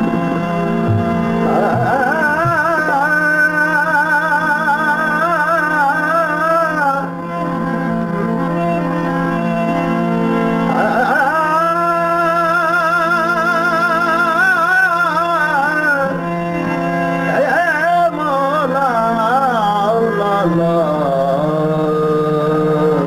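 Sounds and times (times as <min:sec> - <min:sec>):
steady drone: 0:00.7 - 0:03.1
man singing ornamented notes: 0:00.9 - 0:07.1, 0:10.7 - 0:16.3, 0:17.3 - 0:23.0.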